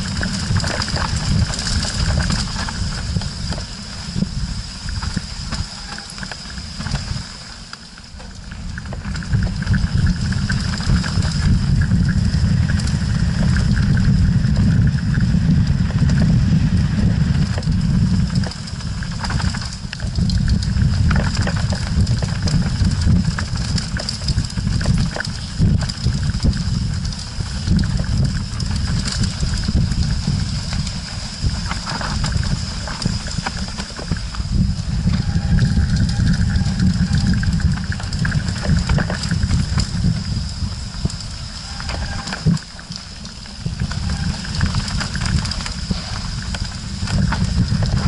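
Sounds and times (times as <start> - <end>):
bike rattles and knocks: 0.0 - 48.0
rolling rumble of tyres on dirt: 0.0 - 48.0
wind buffeting: 0.0 - 48.0.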